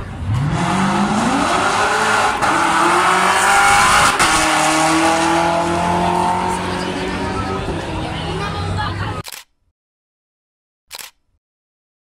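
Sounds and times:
car engine at full throttle: 0.0s - 8.8s.

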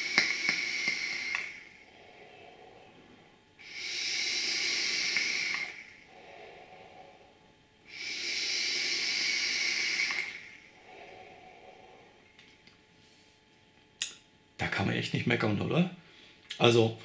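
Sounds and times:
vaping hiss of air: 0.0s - 12.2s
soft exhaled breath: 0.0s - 13.5s.

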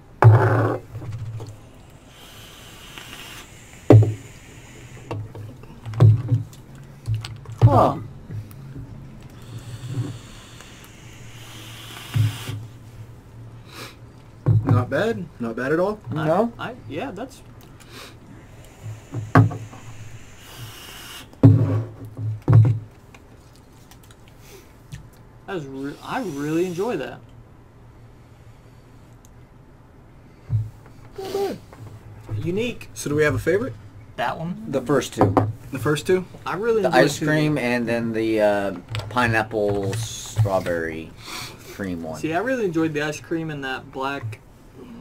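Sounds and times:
soft hiss: 0.0s - 45.0s
breathy vapour exhale hiss: 1.6s - 5.8s, 9.3s - 12.8s, 13.6s - 14.0s, 17.8s - 21.6s, 25.7s - 27.1s, 31.1s - 31.8s, 41.2s - 41.8s
loud throat noises: 9.3s - 12.6s
objects knocking on wooden tabletop: 21.4s - 22.8s.

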